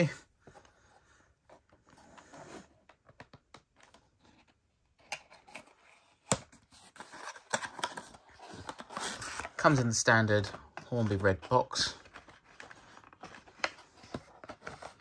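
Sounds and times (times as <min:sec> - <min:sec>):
cardboard scraping and rustling: 0:05.2 - 0:15.0.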